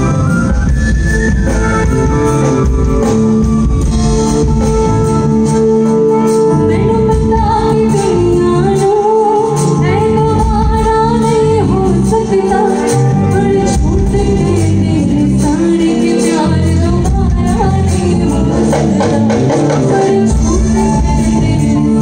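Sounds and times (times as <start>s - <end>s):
woman singing into microphone: 6.2s - 22.0s.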